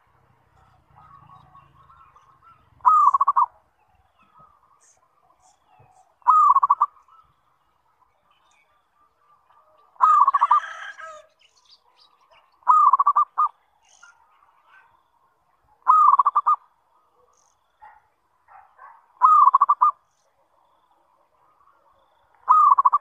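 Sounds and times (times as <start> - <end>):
dove cooing: 0.6 - 3.6, 5.7 - 7.0, 10.0 - 11.2, 12.6 - 13.5, 15.8 - 16.6, 19.2 - 20.0, 22.5 - 23.0.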